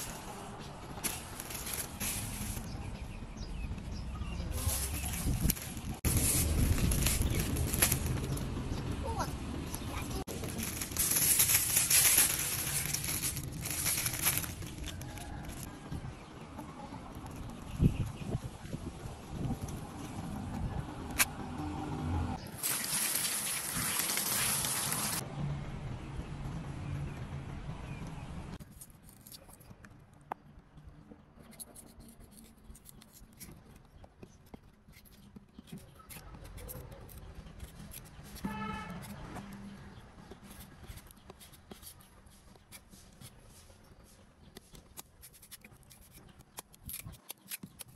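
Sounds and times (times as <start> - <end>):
plastic bag crinkling: 1.0 - 2.7, 4.6 - 8.4, 10.3 - 15.7, 22.6 - 25.2
knife scraping and cutting fruit: 31.4 - 34.3, 34.9 - 39.6, 40.2 - 47.9
fruit cracking open: 44.9 - 47.9.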